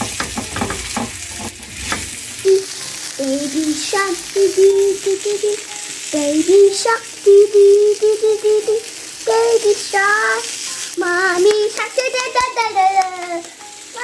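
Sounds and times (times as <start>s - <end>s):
spatula scraping a pan: 0.0s - 2.4s
vegetables sizzling in a frying pan: 0.0s - 14.0s
child singing: 2.4s - 14.0s.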